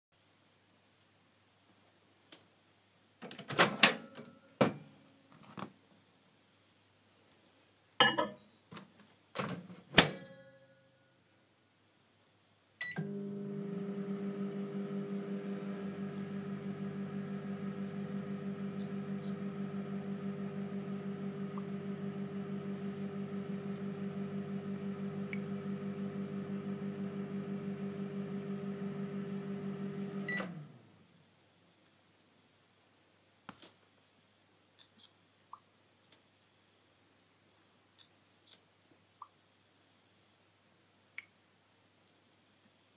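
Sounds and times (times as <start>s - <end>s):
microwave oven humming: 12.8s - 31.0s.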